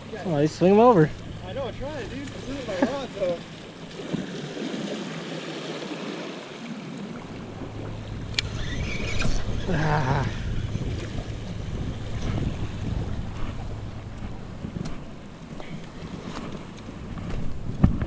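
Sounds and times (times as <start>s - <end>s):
waves washing against rocks: 0.0s - 18.0s
wind buffeting microphone: 7.0s - 18.0s.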